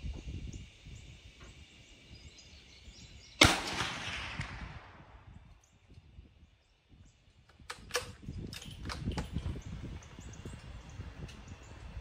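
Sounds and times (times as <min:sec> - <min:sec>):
rifle shot with echo: 0:03.4 - 0:05.2.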